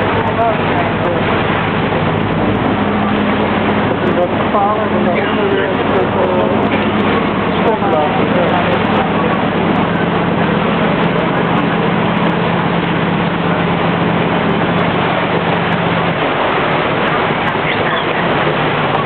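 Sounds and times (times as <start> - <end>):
motorboat engine hum: 0.0 - 19.0
rushing water: 0.0 - 19.0.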